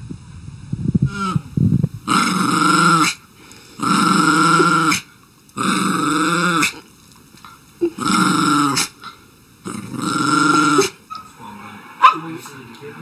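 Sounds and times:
small dog growling: 1.1 - 3.2, 3.8 - 6.9, 7.8 - 11.4.

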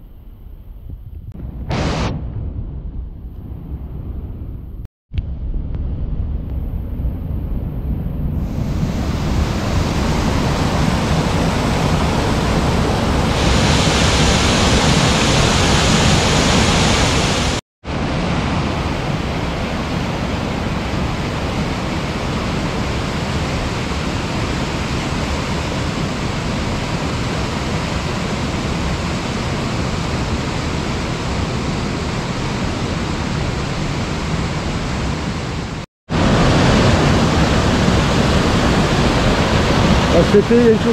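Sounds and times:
flooded river rushing: 8.6 - 40.9.

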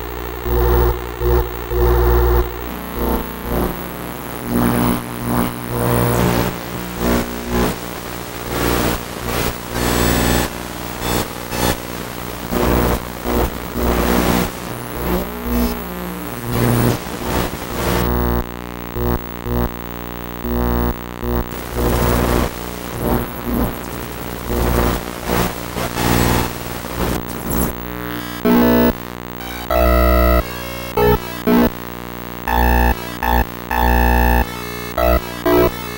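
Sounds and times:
harsh electronic noise music: 27.1 - 31.8, 32.4 - 35.9.

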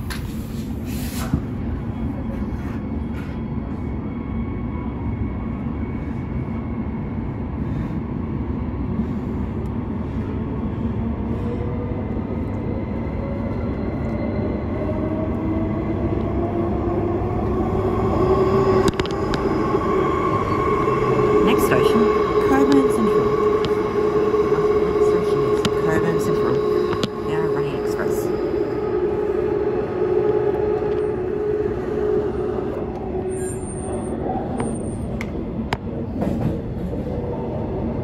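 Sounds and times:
train wheels rumbling on rail: 0.0 - 38.0
traction motor whine: 17.1 - 33.8.

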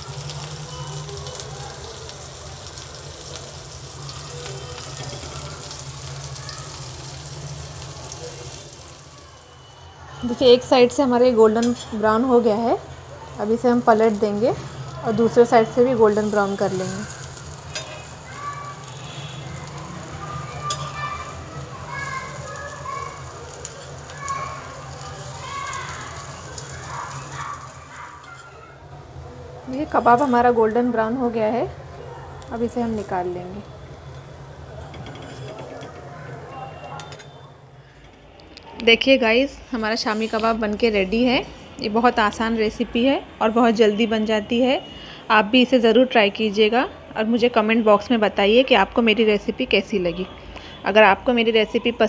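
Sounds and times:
food sizzling in hot oil: 0.0 - 37.9.

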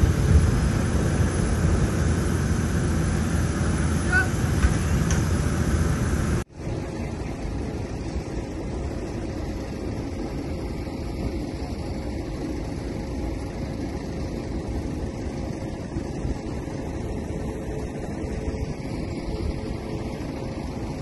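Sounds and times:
distant engine roar: 0.0 - 10.3.

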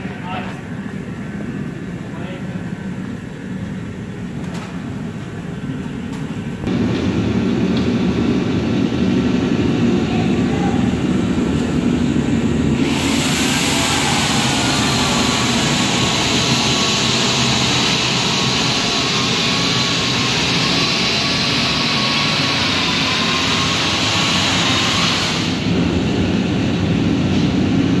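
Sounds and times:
space heater roaring: 0.0 - 28.0
loud hiss with high whine: 6.7 - 27.2.

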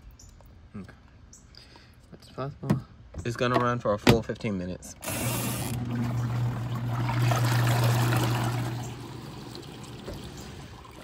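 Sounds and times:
agitator churning water: 5.0 - 11.0
washing machine motor hum: 5.0 - 11.0.

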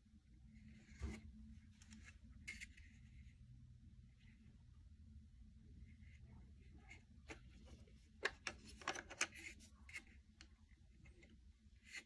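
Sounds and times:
plastic clicks and scrapes: 1.8 - 3.0, 6.9 - 12.0.

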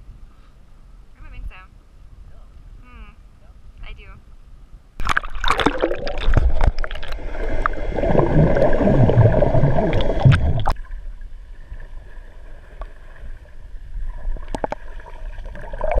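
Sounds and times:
water rushing and bubbling: 5.0 - 16.0.

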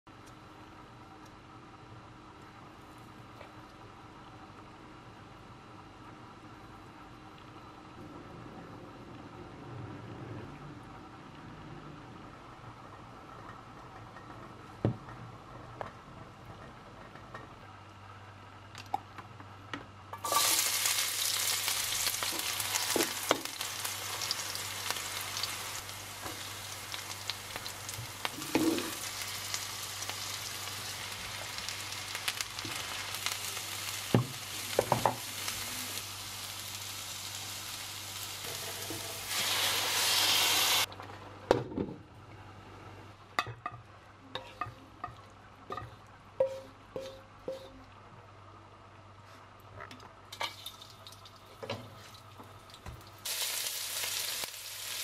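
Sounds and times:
vegetables sizzling in hot oil: 20.2 - 40.9, 52.8 - 55.0.

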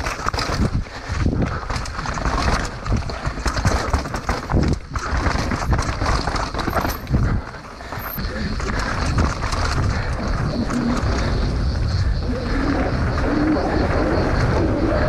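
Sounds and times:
tyres crunching on dirt: 0.0 - 11.3
wind rumble on microphone: 0.0 - 15.0
chain and frame clattering: 1.6 - 9.9.

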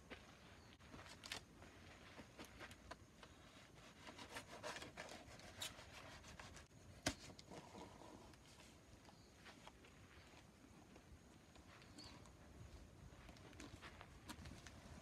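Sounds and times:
knife scraping cardboard: 3.9 - 6.7.

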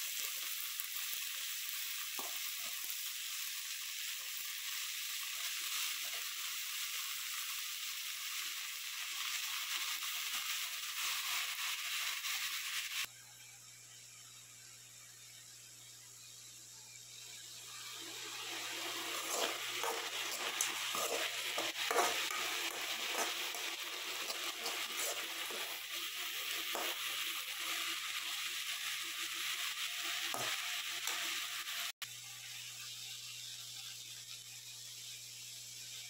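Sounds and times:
leaves sizzling in a pan: 0.0 - 36.0
metal spatula scraping a pan: 18.2 - 28.1, 30.0 - 31.4.

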